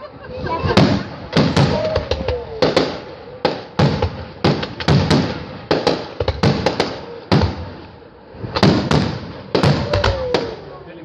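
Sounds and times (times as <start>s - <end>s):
fireworks bangs with echo: 0.6s - 10.8s.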